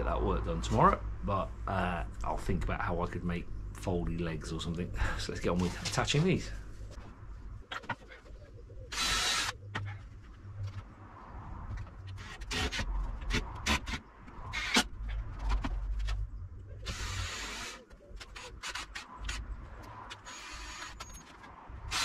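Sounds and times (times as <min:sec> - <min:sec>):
drill driving screws: 0:08.9 - 0:09.6, 0:16.8 - 0:17.8, 0:20.2 - 0:21.2.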